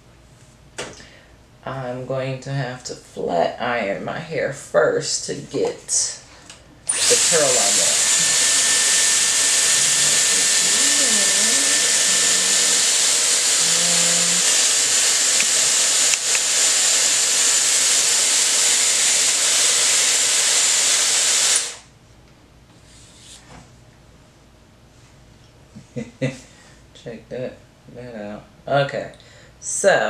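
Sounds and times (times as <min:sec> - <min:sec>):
hair styler blowing air: 0:06.9 - 0:21.9.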